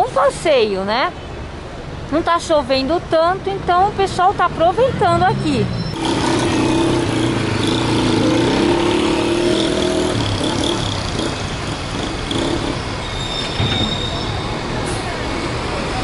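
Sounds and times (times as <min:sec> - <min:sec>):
traffic hiss: 0:10.2 - 0:16.0.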